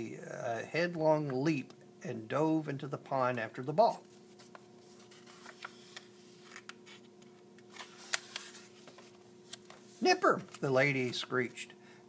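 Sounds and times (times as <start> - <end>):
faint steady hum: 0.0 - 12.0
paper rustling: 4.1 - 7.0, 7.7 - 10.7.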